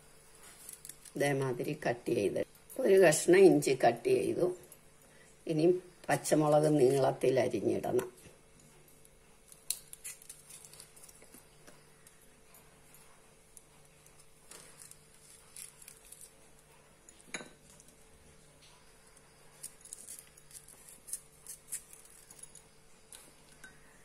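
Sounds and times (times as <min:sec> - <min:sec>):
faint steady hum: 0:00.0 - 0:24.0
knife slitting chillies: 0:19.6 - 0:22.3.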